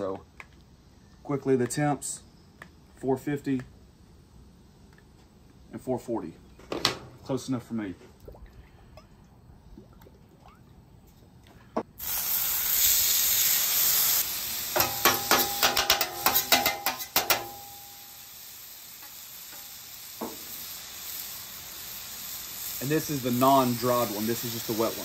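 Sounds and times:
steak sizzling on griddle: 12.0s - 25.0s
metal spatula scraping griddle: 14.8s - 17.6s.

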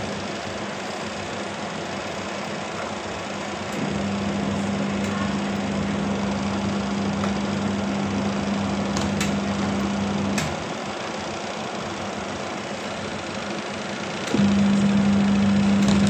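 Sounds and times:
washing machine motor hum: 0.0s - 16.0s
mechanical whir: 3.6s - 10.8s, 14.2s - 16.0s.

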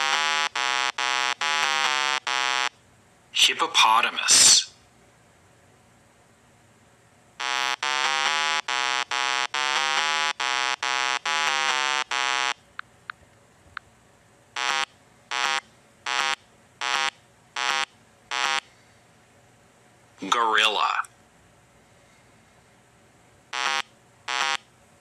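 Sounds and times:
buzzy electronic beeps: 7.4s - 12.6s, 23.6s - 24.6s.

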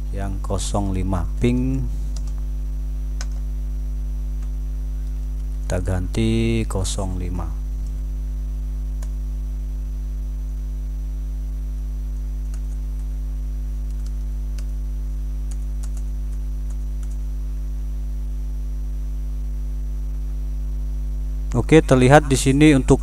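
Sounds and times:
electrical mains hum: 0.0s - 23.0s
keyboard keys typing: 13.8s - 14.7s, 15.5s - 17.2s
thin high whine: 17.5s - 23.0s.

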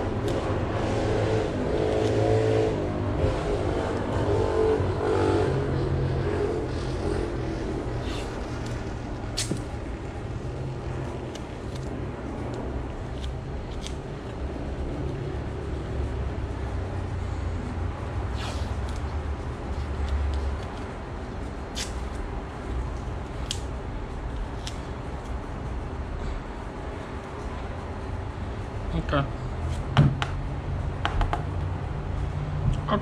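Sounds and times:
motor vehicle engine revving: 0.0s - 9.0s.

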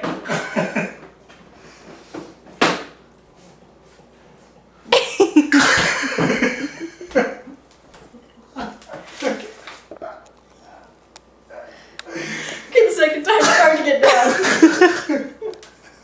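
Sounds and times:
woman coughing and spluttering: 4.9s - 6.7s, 13.3s - 15.1s.

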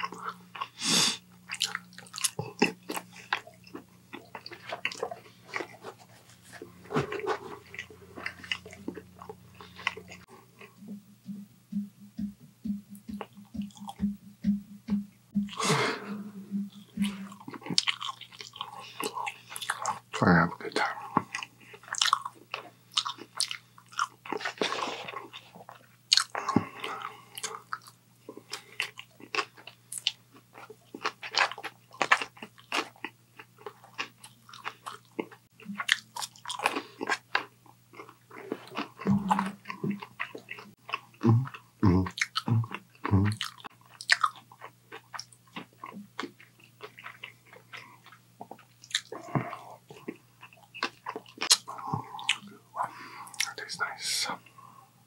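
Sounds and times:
person chewing crunchy food: 0.0s - 10.8s, 13.1s - 14.0s, 15.5s - 20.2s, 20.8s - 54.8s
low thumps: 10.8s - 17.3s.

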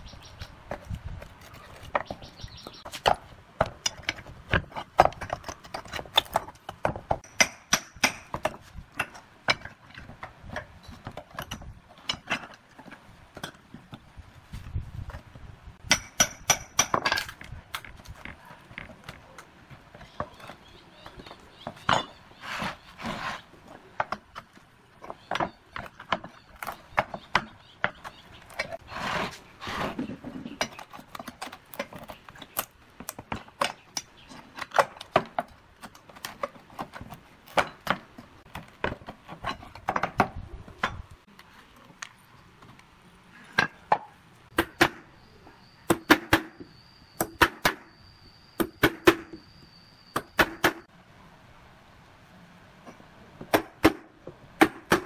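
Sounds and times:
boards scraping: 17.0s - 32.6s.

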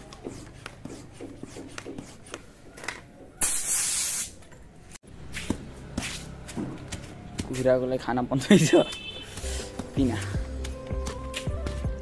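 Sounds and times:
air hiss: 3.4s - 4.4s.

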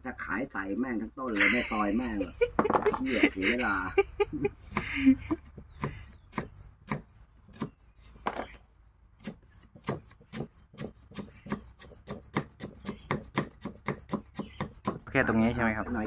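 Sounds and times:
knife chopping on wooden block: 4.7s - 8.6s, 9.2s - 15.1s.

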